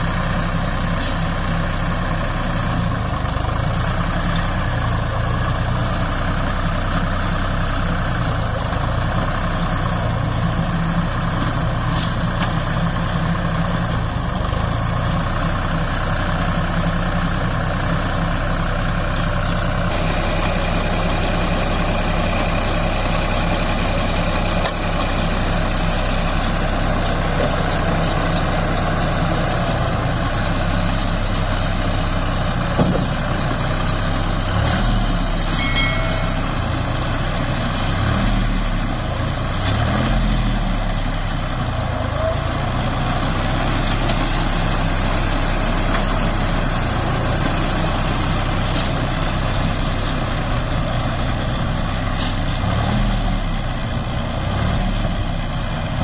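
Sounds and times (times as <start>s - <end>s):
tractor diesel engine under load: 0.0s - 56.0s
baler mechanism running: 32.9s - 38.0s.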